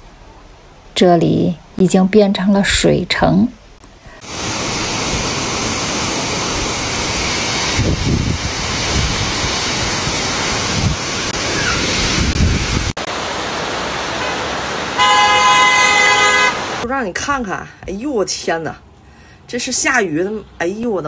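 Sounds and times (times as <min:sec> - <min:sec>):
heavy rain: 0:04.2 - 0:16.8
storm wind: 0:04.2 - 0:16.8
wind buffeting microphone: 0:07.0 - 0:13.0.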